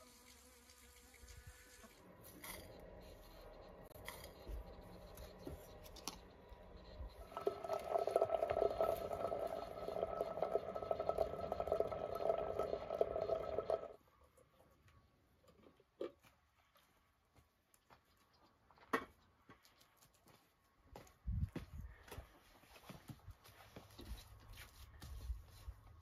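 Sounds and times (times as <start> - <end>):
hot water filling a teapot: 7.1 - 14.0.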